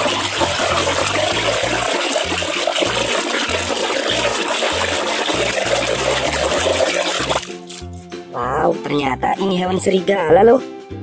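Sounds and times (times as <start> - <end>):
water splashing in a basin: 0.0 - 8.0.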